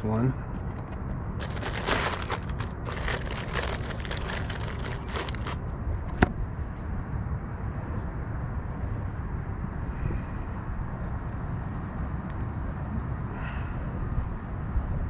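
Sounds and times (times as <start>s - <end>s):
plastic bag crinkling: 1.4s - 5.6s.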